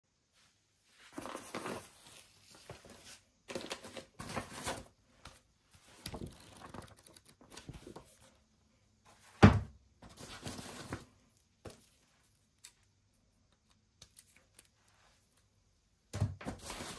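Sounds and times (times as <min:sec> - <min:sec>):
paper pages rustling: 0:01.1 - 0:08.3, 0:10.0 - 0:12.9.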